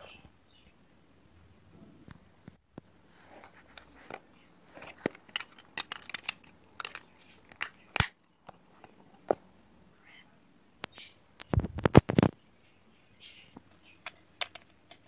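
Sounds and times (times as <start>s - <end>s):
plastic toy bricks clicking: 5.0s - 8.2s, 14.0s - 15.0s.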